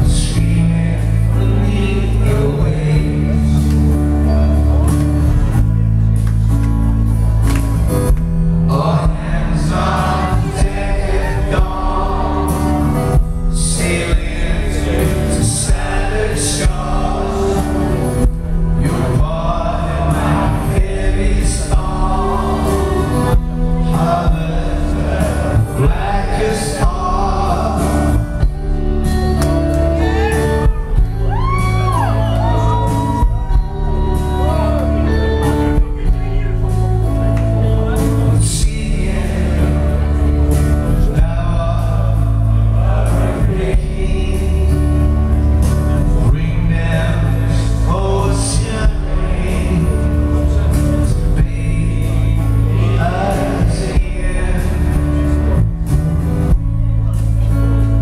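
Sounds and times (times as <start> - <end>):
man singing: 0.0 - 4.4, 8.6 - 29.1, 37.8 - 56.6
bass guitar: 0.0 - 58.0
electric guitar: 0.0 - 58.0
keyboards: 0.0 - 58.0.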